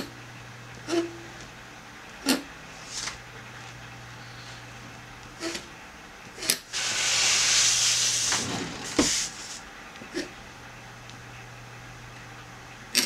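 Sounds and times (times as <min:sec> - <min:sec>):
paper scraping across table: 0:02.8 - 0:03.2, 0:06.7 - 0:09.6.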